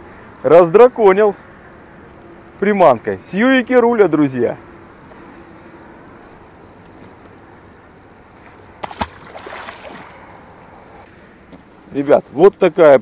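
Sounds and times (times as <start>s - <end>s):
faint background noise: 0.0s - 13.0s
fish splashing into water: 8.8s - 10.3s.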